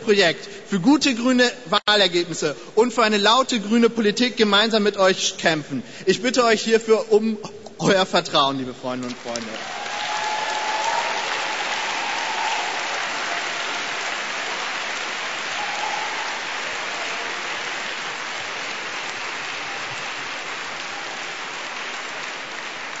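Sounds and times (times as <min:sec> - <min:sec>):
audience applauding: 0:09.1 - 0:23.0.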